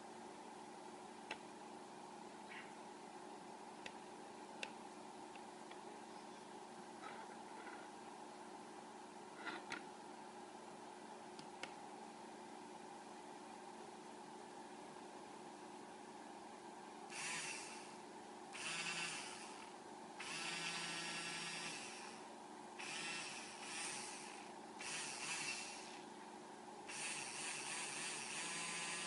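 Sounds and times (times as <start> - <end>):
small electric drill running: 17.1 - 18.0, 18.6 - 22.2, 22.8 - 26.0, 26.9 - 29.0.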